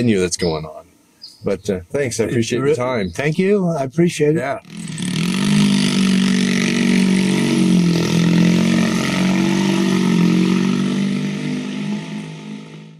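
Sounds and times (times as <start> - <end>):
motorcycle engine at low revs: 4.6 - 12.9.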